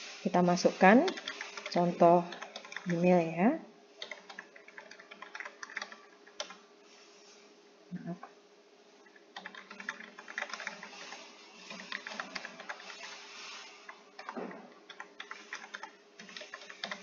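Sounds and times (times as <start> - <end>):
faint steady hum: 0.0 - 17.0
keyboard typing: 1.0 - 3.0, 4.0 - 6.6, 9.4 - 17.0.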